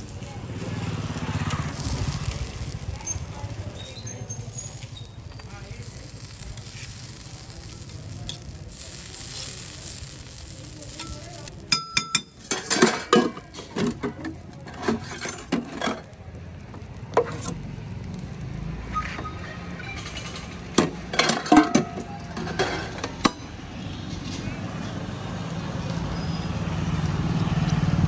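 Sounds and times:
faint sizzle: 0.0 - 27.1
spatula scraping on griddle: 1.0 - 17.7, 18.8 - 24.2
metal utensil clinking: 10.8 - 16.1, 19.8 - 23.4
metallic clanks and taps: 20.1 - 23.4.

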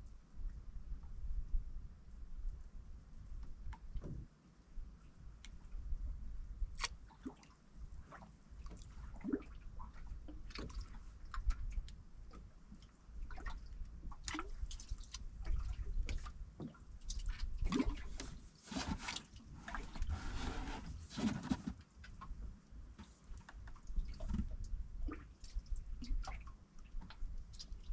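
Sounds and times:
water slapping boat hull: 6.8 - 22.2.

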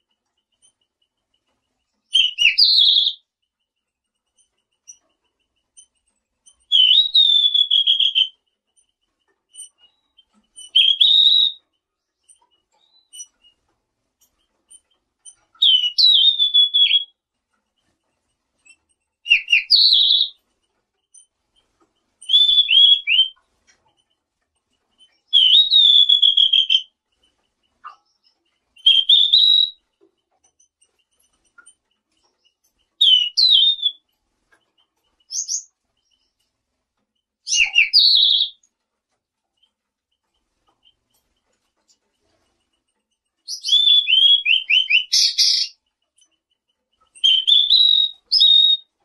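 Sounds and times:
songbird whistling: 2.1 - 3.3, 6.6 - 8.4, 9.6 - 11.6, 15.6 - 17.2, 19.2 - 20.4, 22.2 - 23.4, 25.2 - 26.9, 27.9 - 29.8, 33.0 - 34.0, 35.2 - 36.4, 37.5 - 38.6, 43.5 - 45.8, 47.2 - 48.9.

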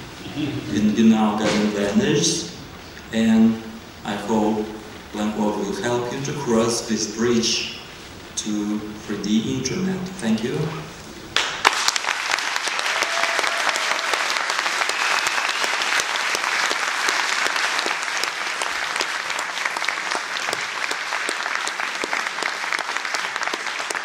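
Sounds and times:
audience applauding: 11.4 - 24.0.

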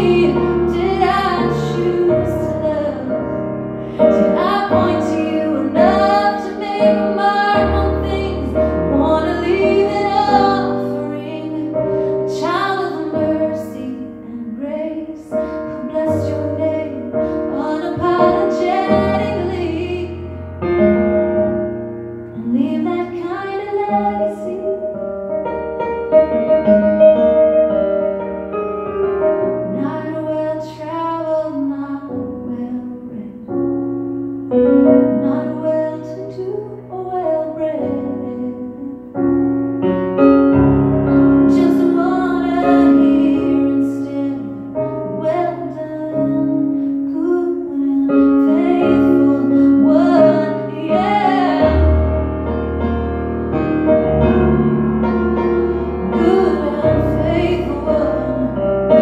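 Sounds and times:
woman singing: 0.0 - 20.3, 22.4 - 25.0, 29.7 - 33.6, 35.0 - 39.1, 41.4 - 52.0, 56.0 - 59.0
keyboard piano chords: 0.0 - 59.0.

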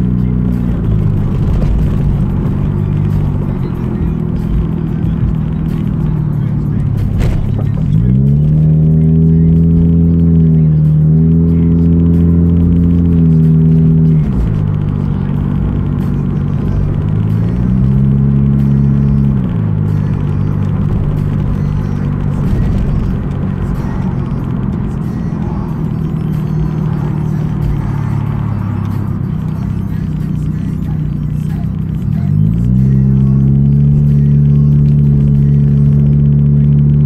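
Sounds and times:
car road and engine noise: 0.0 - 37.0.

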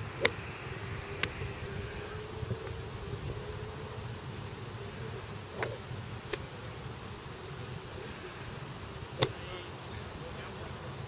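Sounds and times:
faint steady hum: 0.0 - 11.0
golf iron striking ball: 0.2 - 0.4, 5.5 - 6.4, 9.2 - 9.4.

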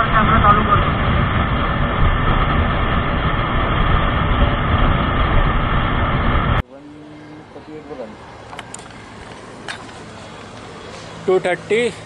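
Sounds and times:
wind rush over microphone: 0.0 - 6.6.

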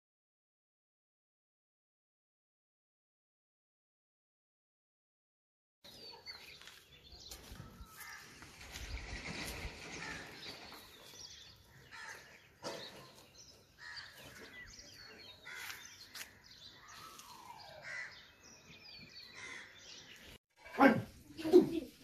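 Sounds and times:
birds calling and chirping: 5.9 - 22.0.

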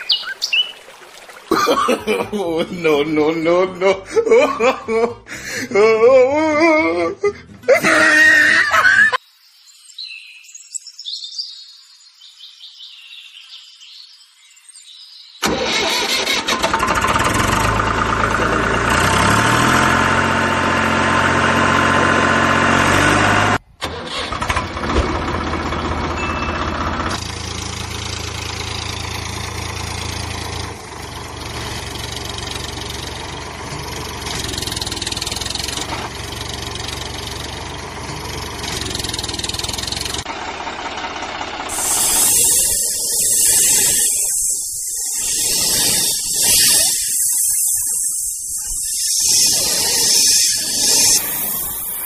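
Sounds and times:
engine running loud: 15.4 - 47.1.

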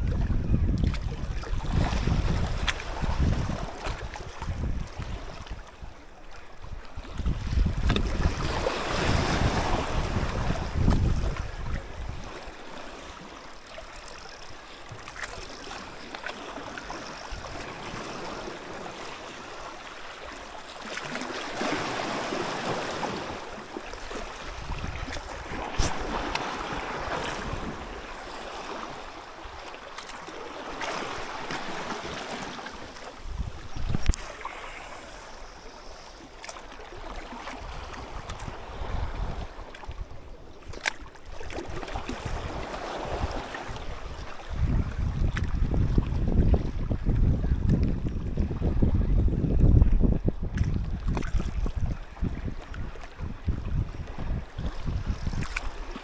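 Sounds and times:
wind buffeting microphone: 0.0 - 6.0, 6.6 - 12.4, 24.0 - 28.1, 33.0 - 35.6, 37.4 - 56.0
sea waves washing: 7.0 - 39.8.

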